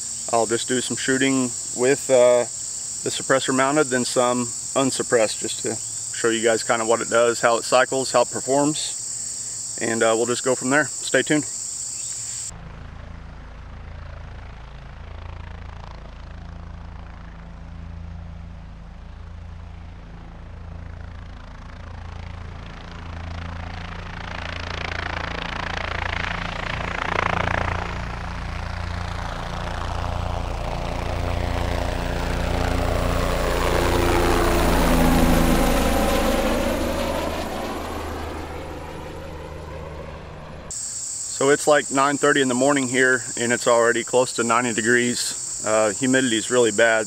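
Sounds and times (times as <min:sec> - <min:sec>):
drone propellers buzzing: 0:14.0 - 0:47.0.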